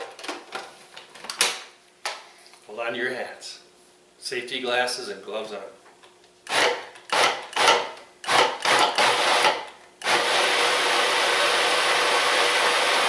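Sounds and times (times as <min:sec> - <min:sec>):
food processor chopping: 0:06.5 - 0:13.0.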